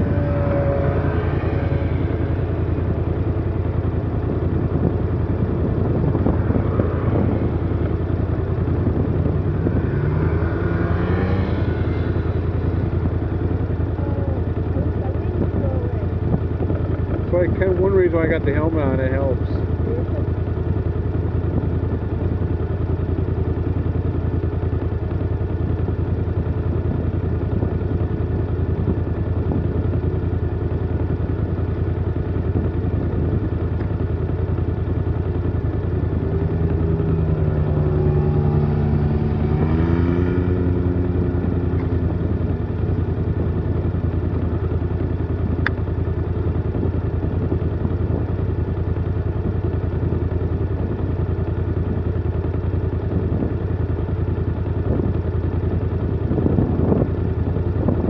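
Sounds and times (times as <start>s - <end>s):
off-road vehicle passing by: 0.0s - 20.3s, 34.9s - 44.9s
engine idling: 0.0s - 58.0s.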